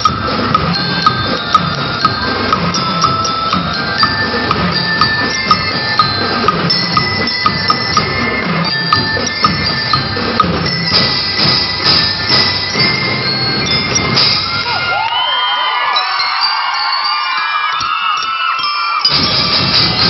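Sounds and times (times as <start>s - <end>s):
marching drums: 0.0s - 15.0s, 19.1s - 20.0s
bell lyres ringing melody: 0.0s - 20.0s.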